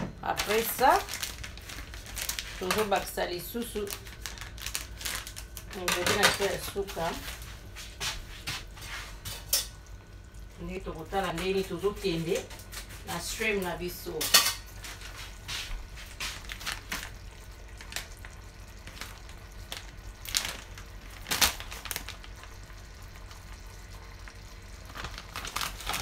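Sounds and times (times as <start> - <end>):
sauce bubbling in a pan: 7.7 - 13.0, 14.8 - 25.9.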